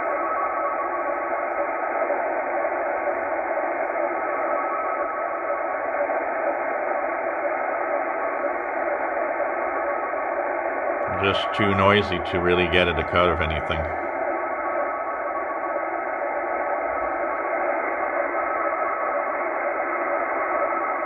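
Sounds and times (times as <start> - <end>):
faint steady data tones: 0.0 - 21.0
radio static hiss: 0.0 - 21.0.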